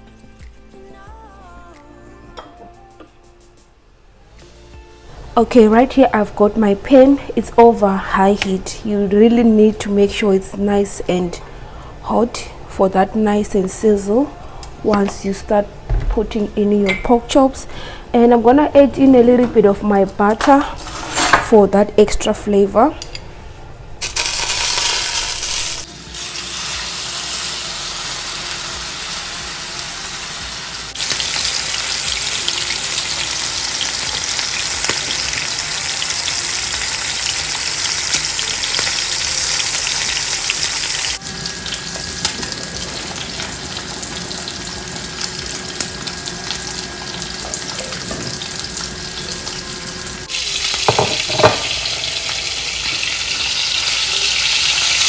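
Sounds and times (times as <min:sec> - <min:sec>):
meat sizzling in a pan: 0:24.0 - 0:55.0.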